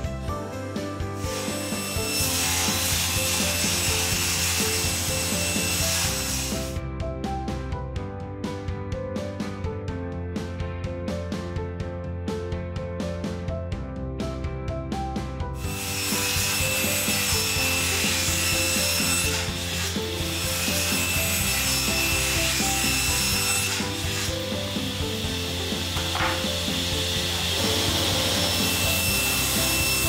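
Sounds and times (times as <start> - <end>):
table saw cutting wood: 0.0 - 6.8, 15.6 - 30.0
background music: 0.0 - 30.0.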